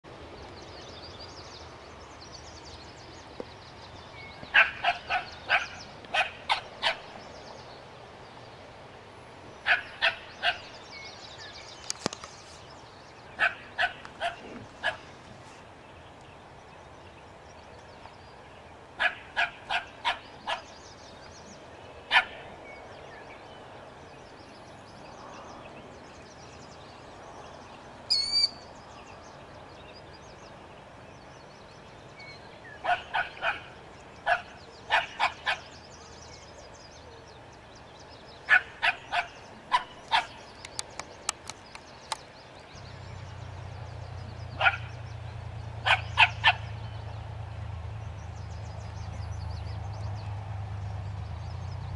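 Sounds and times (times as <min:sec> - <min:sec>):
bird chirping: 0:00.2 - 0:08.7, 0:15.8 - 0:47.3, 0:47.9 - 0:51.9
small dog yapping: 0:04.5 - 0:07.0.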